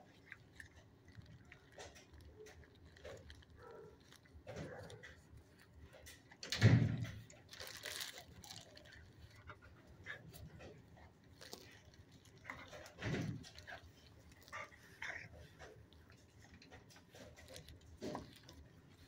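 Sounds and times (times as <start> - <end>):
dog sniffing and snuffling: 0.0 - 19.0.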